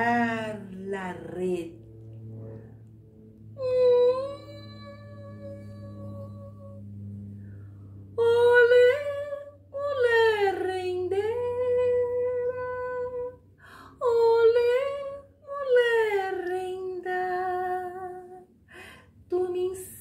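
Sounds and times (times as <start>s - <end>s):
woman singing wordless melody: 0.0s - 1.8s, 3.6s - 6.8s, 8.2s - 20.0s.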